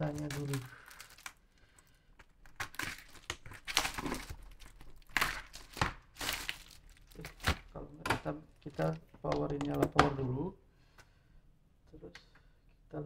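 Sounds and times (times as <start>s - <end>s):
plastic packaging crinkling: 0.0s - 7.8s, 8.5s - 10.2s.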